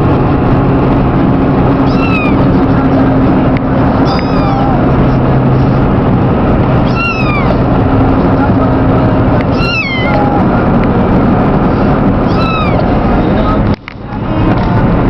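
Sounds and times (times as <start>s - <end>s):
car hum and road noise: 0.0s - 15.0s
kitten meowing: 1.8s - 2.5s, 4.0s - 4.9s, 6.8s - 7.7s, 9.4s - 10.5s, 12.2s - 13.0s.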